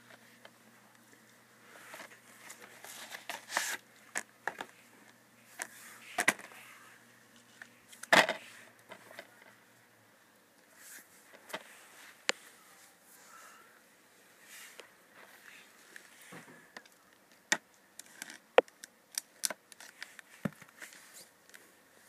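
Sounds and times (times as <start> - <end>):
plastic case clicks and rustles: 5.6 - 6.6.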